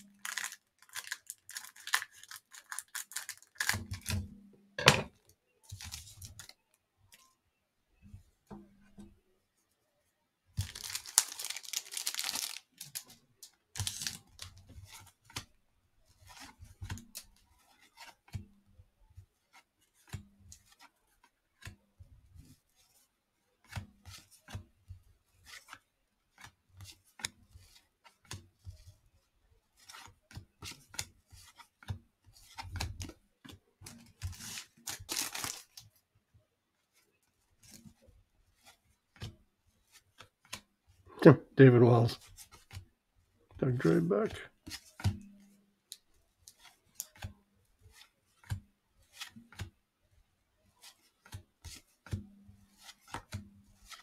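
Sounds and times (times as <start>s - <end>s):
cellophane wrapper tearing: 0.0s - 3.8s, 10.6s - 13.0s, 13.8s - 14.2s, 34.4s - 35.7s.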